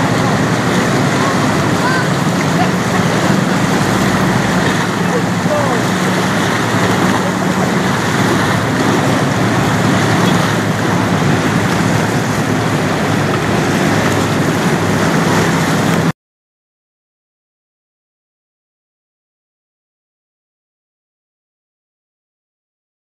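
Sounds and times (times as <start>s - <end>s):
boat engines humming: 0.0s - 16.1s
waves rushing: 0.0s - 16.1s
wind: 0.0s - 16.1s.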